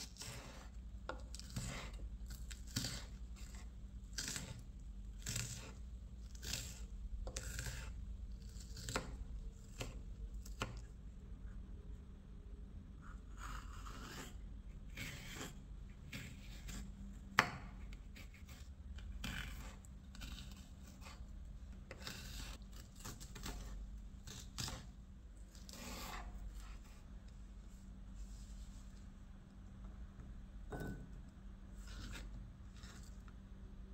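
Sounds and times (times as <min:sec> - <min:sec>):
knife cutting peppers: 0:00.0 - 0:10.9, 0:13.4 - 0:21.2, 0:21.8 - 0:24.9, 0:25.5 - 0:27.0, 0:31.8 - 0:33.2.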